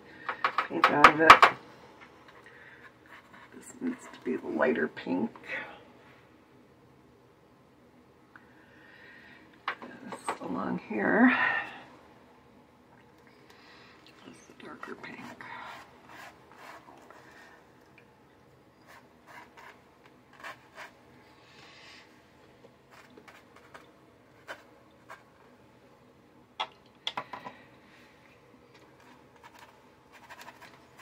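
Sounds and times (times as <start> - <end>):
brush strokes on paper: 15.0 - 17.6.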